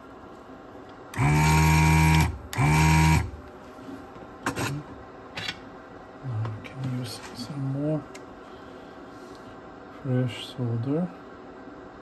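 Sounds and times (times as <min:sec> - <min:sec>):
small electric motor buzzing: 0:01.2 - 0:03.4.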